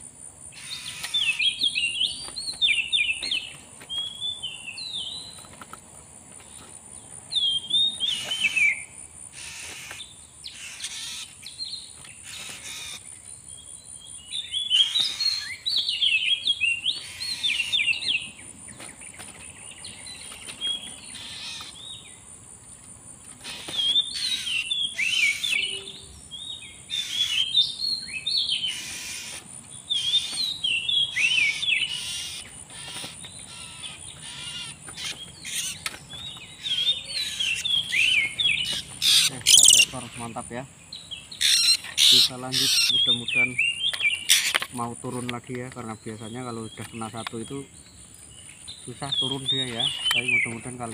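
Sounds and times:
bird whistling and chattering: 0:23.5 - 0:26.1, 0:36.5 - 0:40.1, 0:41.4 - 0:44.6.

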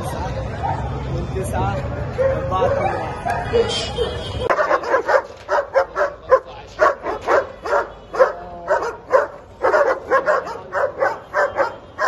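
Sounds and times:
dog barking: 0:02.5 - 0:12.0.

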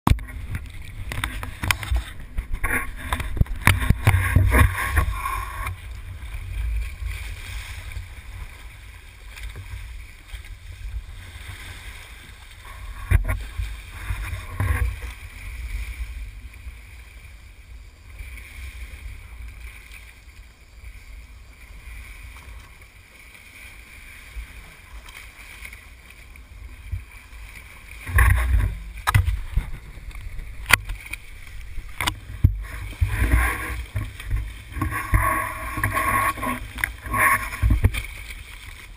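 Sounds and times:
water splashing along boat hull: 0:00.0 - 0:38.9
steady low rumble: 0:26.1 - 0:38.9.

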